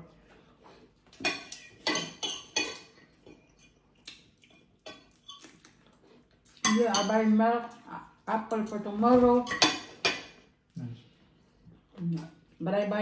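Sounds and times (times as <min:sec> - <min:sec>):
cutlery clinking on plates: 0:01.1 - 0:03.8, 0:09.4 - 0:10.4.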